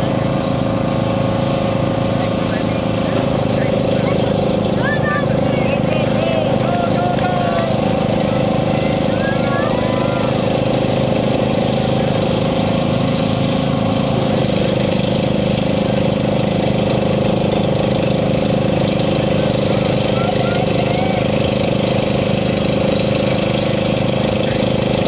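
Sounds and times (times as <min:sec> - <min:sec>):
tractor engine running: 0:00.0 - 0:25.0.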